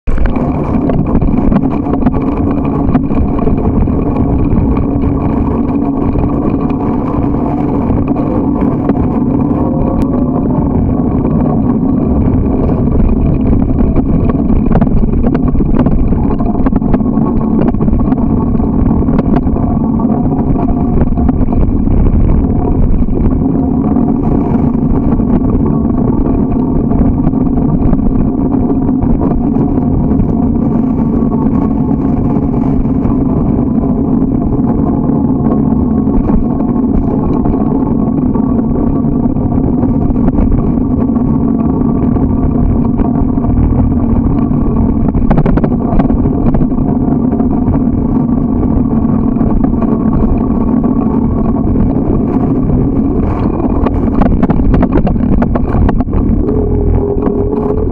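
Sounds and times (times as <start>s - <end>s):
bicycle rolling noise: 0.0s - 57.9s
wind rumble on microphone: 0.0s - 57.9s.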